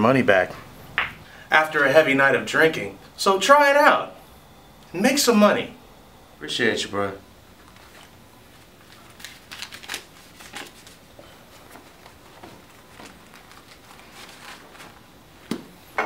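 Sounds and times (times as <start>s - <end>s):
wallet rustling: 7.6s - 15.2s.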